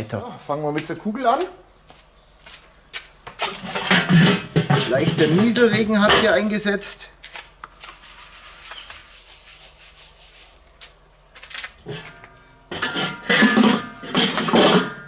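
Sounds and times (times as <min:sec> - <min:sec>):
metal lid scraping and clanking: 0:03.4 - 0:06.4, 0:11.8 - 0:15.0
brushing on grill lid: 0:07.8 - 0:10.9.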